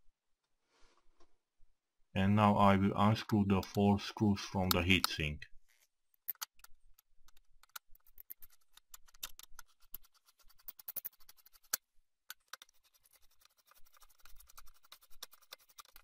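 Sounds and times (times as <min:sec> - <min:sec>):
screwdriver clicks and scrapes: 0:05.7 - 0:16.0.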